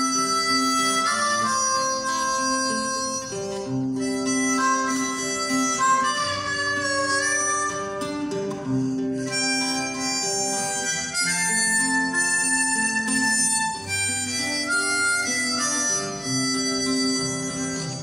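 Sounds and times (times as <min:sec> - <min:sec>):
harmonica melody: 0:00.0 - 0:18.0
strummed acoustic guitars: 0:00.0 - 0:18.0.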